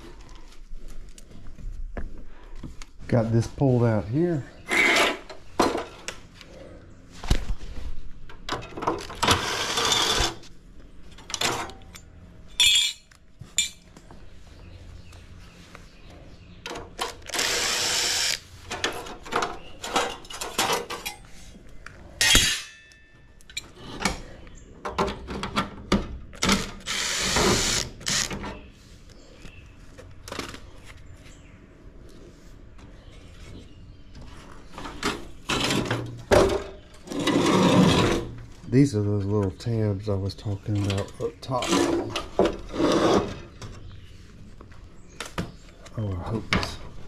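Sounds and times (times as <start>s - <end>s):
power drill running: 17.3s - 18.4s, 26.8s - 28.3s.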